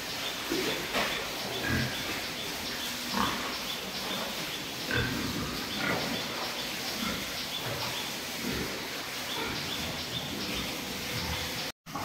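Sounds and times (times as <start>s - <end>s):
pigs grunting: 0.4s - 12.0s.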